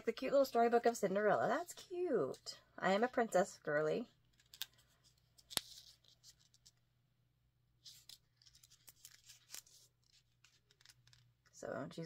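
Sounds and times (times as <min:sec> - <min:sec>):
book pages turning: 0:04.3 - 0:06.8, 0:07.8 - 0:11.4.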